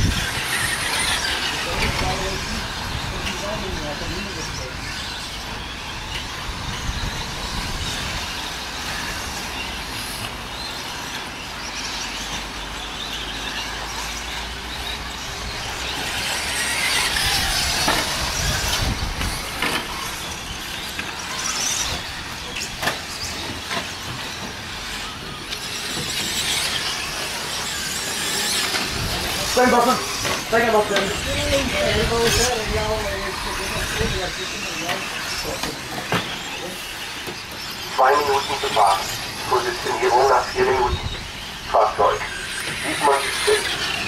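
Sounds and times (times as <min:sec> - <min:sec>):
rc trucks whirring past: 0:00.0 - 0:44.0.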